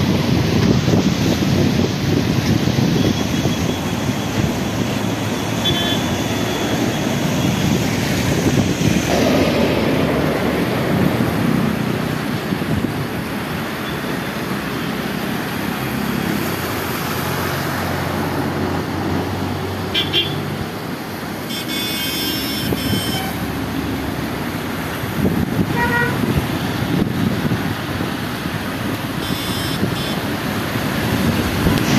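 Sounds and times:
wind on microphone: 0.0 - 5.4, 6.2 - 13.7, 24.2 - 31.9
road traffic: 0.0 - 31.9
vehicle horn: 5.6 - 6.7, 19.9 - 20.4, 21.5 - 23.5, 25.7 - 26.3, 29.2 - 30.2.

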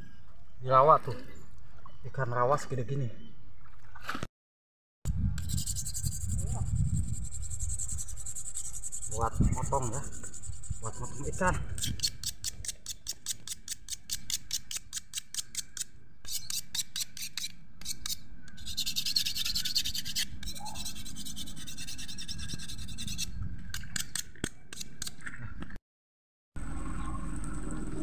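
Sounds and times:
stone scraping against stone: 5.4 - 25.4.

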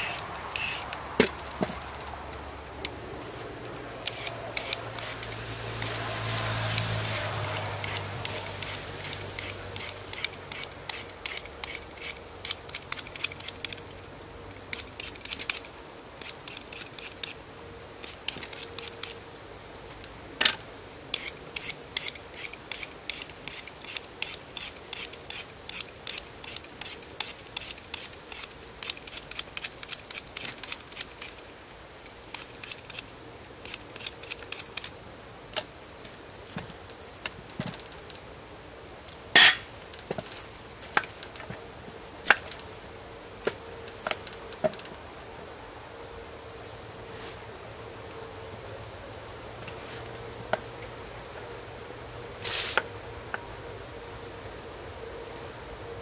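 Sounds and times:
peeler scraping potato skin: 4.1 - 13.8, 21.2 - 31.4.

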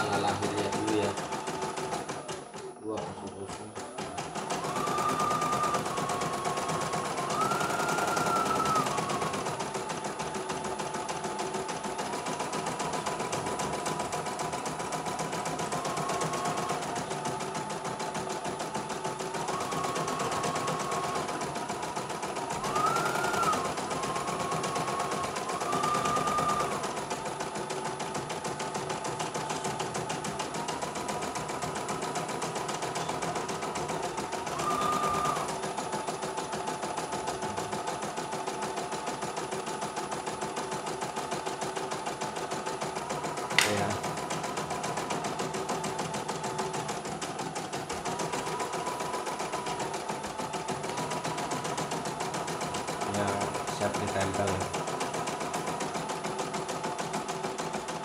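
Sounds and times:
embroidery machine needle clatter: 0.0 - 40.3, 41.0 - 58.0
motor whine changing pitch: 4.5 - 9.6, 22.5 - 26.9.

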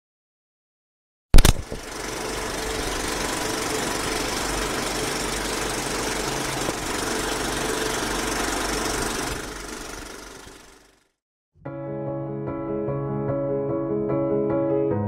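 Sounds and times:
steady mechanical running noise: 1.4 - 11.1.

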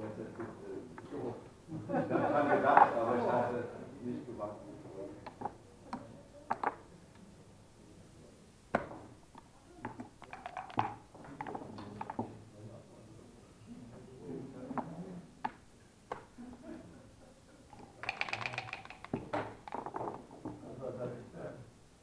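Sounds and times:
faint room murmur: 0.0 - 22.0
checkers and dice clicking on board: 10.0 - 12.2, 17.8 - 20.2.

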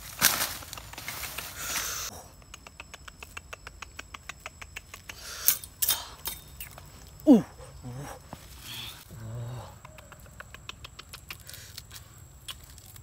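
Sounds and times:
leaves and palm fronds rustling: 0.0 - 2.1.

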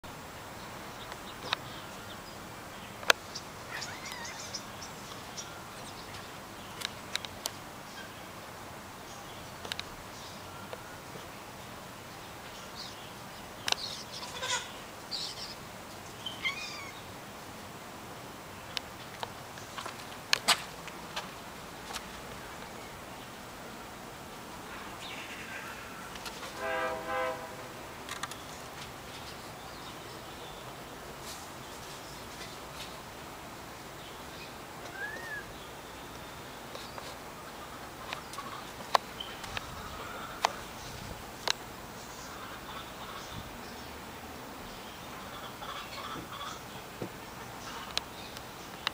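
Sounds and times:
outdoor background hiss: 0.0 - 48.9
horn blasts: 26.4 - 27.8.

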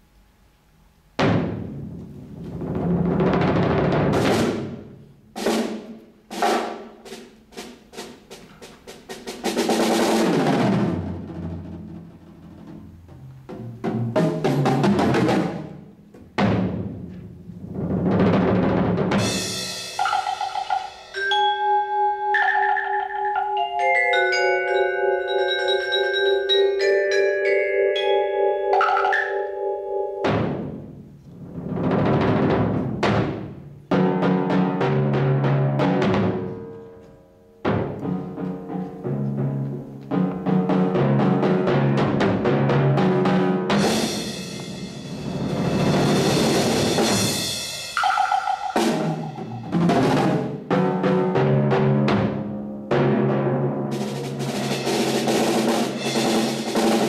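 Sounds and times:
drum rolls and hits: 1.2 - 21.3, 30.2 - 57.0
ringing mallet percussion notes: 20.0 - 30.4, 48.0 - 49.9.

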